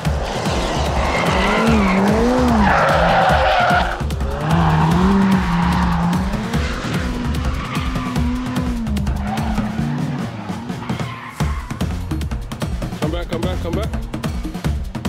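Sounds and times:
music with steady beat: 0:00.0 - 0:15.0
tyres squealing: 0:00.1 - 0:12.0.

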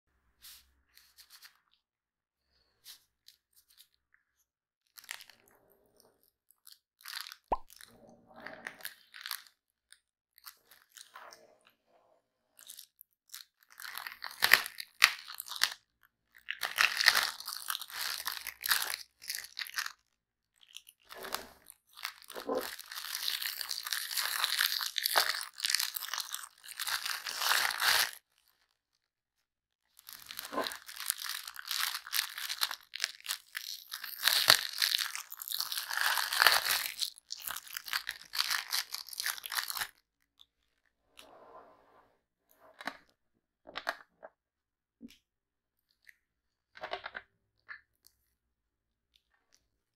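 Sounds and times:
plastic wrapping crinkling: 0:21.9 - 0:28.2, 0:30.0 - 0:40.0.

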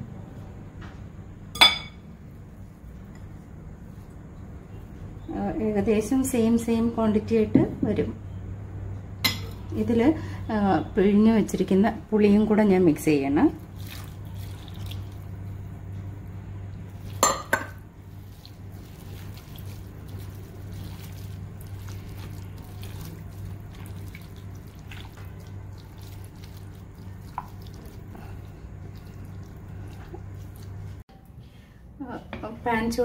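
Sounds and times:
glass clinks: 0:01.6 - 0:02.0
hand squishing wet food: 0:13.4 - 0:17.2, 0:17.8 - 0:31.0.

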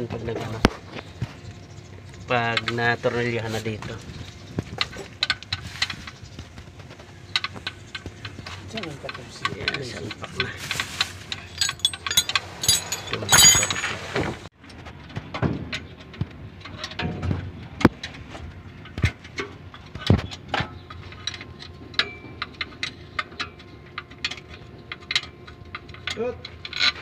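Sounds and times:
loud rustling: 0:10.5 - 0:14.5
metallic tool clinks: 0:11.5 - 0:14.0.

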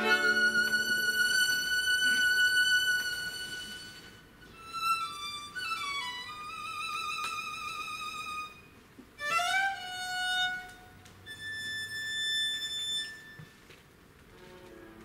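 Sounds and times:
bowed viola d'amore: 0:00.0 - 0:08.6, 0:09.2 - 0:13.4.

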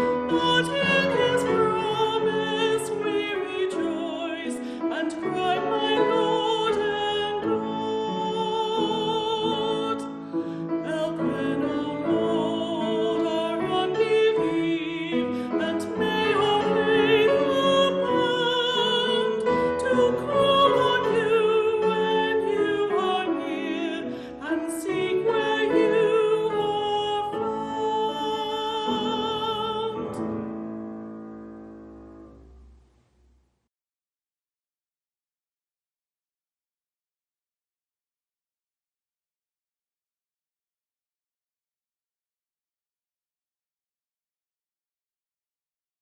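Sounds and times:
woman singing with vibrato: 0:00.1 - 0:10.1, 0:10.8 - 0:30.2.

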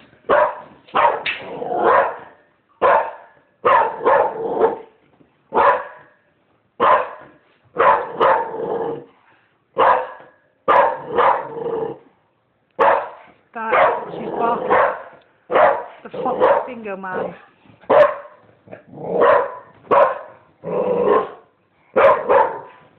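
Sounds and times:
dog barking: 0:00.3 - 0:04.9, 0:05.5 - 0:06.2, 0:06.8 - 0:08.5, 0:09.8 - 0:11.6, 0:12.8 - 0:16.7, 0:17.9 - 0:18.4, 0:19.2 - 0:20.4, 0:21.1 - 0:22.8.

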